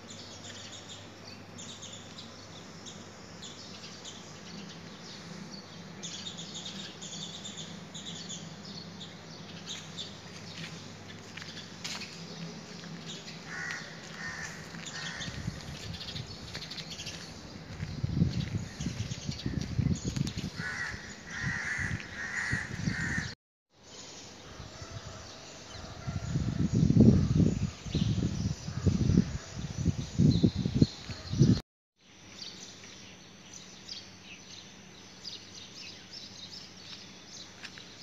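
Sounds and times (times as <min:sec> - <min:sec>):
crows cawing: 0:13.4 - 0:15.6, 0:20.6 - 0:23.4
gusty wind on microphone: 0:15.0 - 0:16.6, 0:17.4 - 0:23.3, 0:24.6 - 0:31.6.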